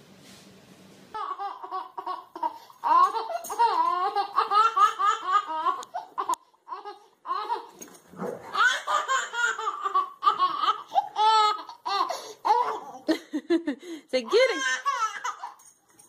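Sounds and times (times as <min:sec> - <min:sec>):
baby giggling: 0:01.2 - 0:07.8, 0:08.5 - 0:13.2, 0:14.3 - 0:15.6
baby squealing: 0:08.5 - 0:13.0.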